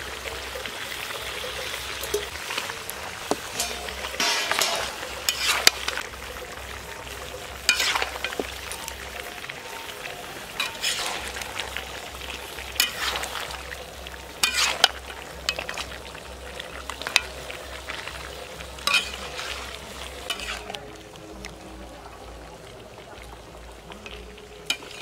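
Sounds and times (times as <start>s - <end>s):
curry sizzling in hot oil: 0.0s - 25.0s
metal spatula scraping pan: 3.3s - 6.4s, 7.3s - 9.3s, 10.5s - 16.1s, 16.8s - 20.8s, 24.7s - 25.0s.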